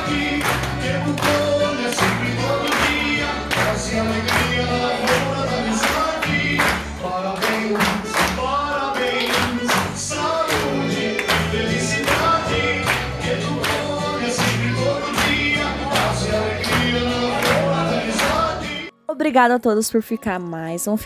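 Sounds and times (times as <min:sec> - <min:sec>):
hand clapping: 0:00.0 - 0:18.6
group singing together: 0:00.0 - 0:18.9.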